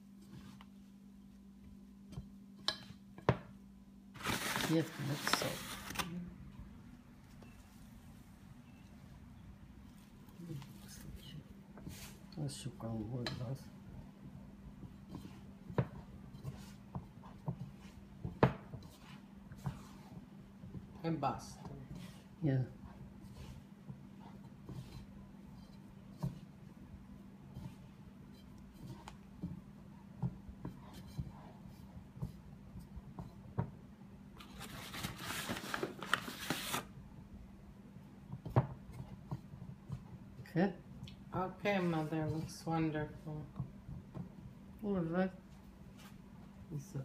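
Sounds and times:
dough kneaded against bowl: 0.0 - 47.0
hands rustling in flour: 4.1 - 6.0, 9.8 - 12.6, 14.7 - 33.4
steady low hum: 6.0 - 34.7.

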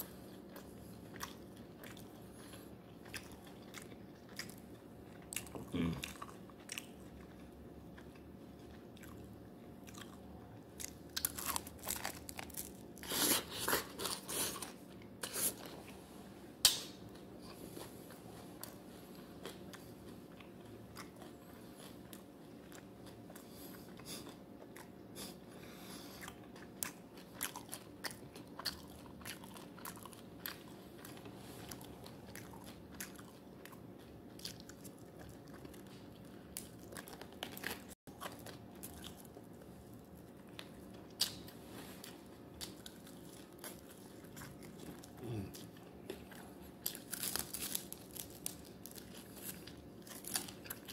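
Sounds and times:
chewing and crunching chicken skin: 0.0 - 15.7, 26.2 - 50.9
sharp loud snap: 16.6 - 17.0.

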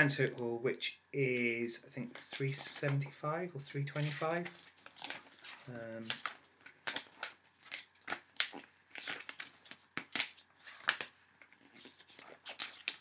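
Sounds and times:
hands rustling papers and items: 1.3 - 13.0.

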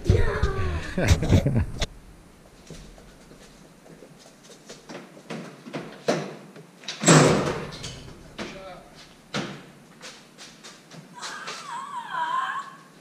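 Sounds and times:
light footsteps: 2.4 - 6.1, 8.0 - 11.8.

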